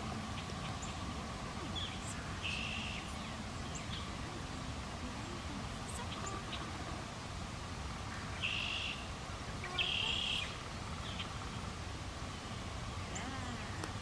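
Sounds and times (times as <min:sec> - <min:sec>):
low background noise: 0:00.0 - 0:14.0
faint bird chirps: 0:00.2 - 0:07.2, 0:08.0 - 0:11.6
bird harsh calls: 0:01.8 - 0:04.2, 0:08.1 - 0:11.6.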